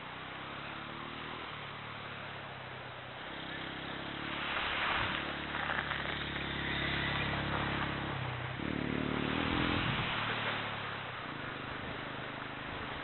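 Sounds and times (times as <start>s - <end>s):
small engine running steadily: 0.0s - 13.0s.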